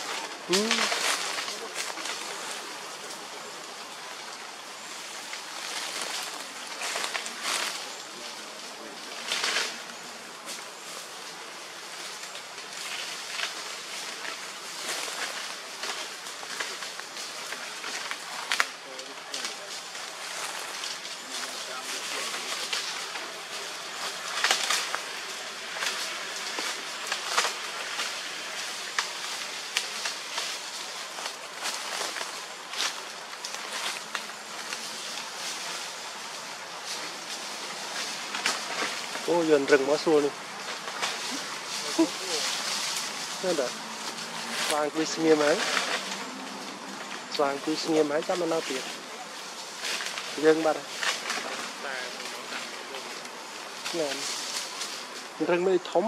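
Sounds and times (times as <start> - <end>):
dry leaves and twigs crackling: 0.0 - 56.0
forest background hiss: 0.0 - 56.0
short bursts of rustling: 11.9 - 55.6.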